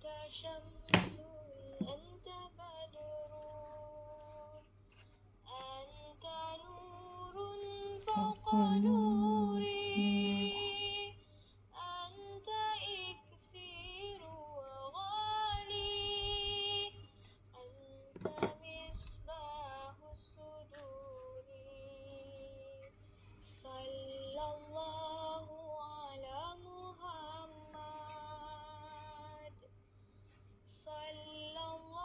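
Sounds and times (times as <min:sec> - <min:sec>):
woman singing slow melody: 0:05.5 - 0:29.7, 0:30.7 - 0:32.0.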